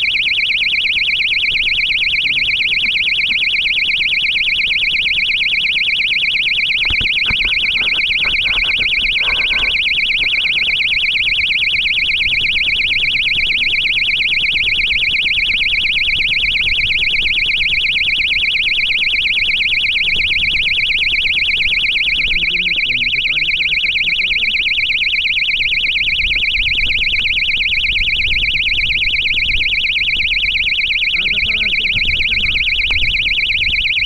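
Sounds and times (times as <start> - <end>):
electronic buzzer warbling tone: 0.0 - 34.0.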